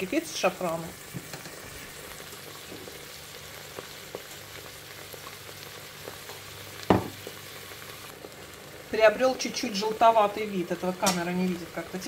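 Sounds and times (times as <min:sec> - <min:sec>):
pot sizzling hiss: 0:00.0 - 0:12.0
sharp knock: 0:06.9 - 0:07.2.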